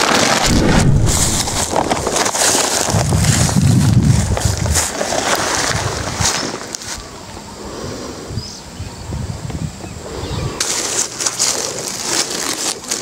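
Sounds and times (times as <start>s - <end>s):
footsteps crunching dry leaves: 0.0s - 7.0s, 10.6s - 13.0s
footsteps through grass: 0.4s - 7.0s.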